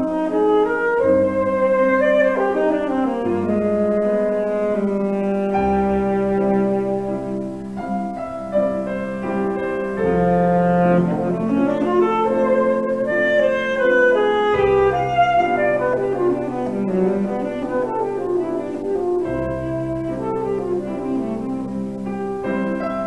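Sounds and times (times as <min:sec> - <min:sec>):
alto saxophone melody: 0:00.0 - 0:23.0
grand piano accompaniment: 0:00.0 - 0:23.0.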